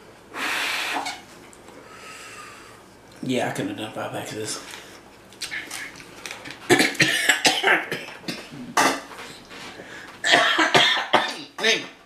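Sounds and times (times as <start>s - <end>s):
man coughing: 6.7s - 8.9s, 10.2s - 11.9s.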